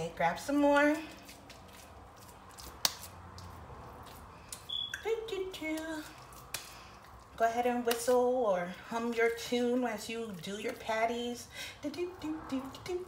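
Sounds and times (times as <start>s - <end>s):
wet mixture shaped by hand: 0.9s - 8.1s.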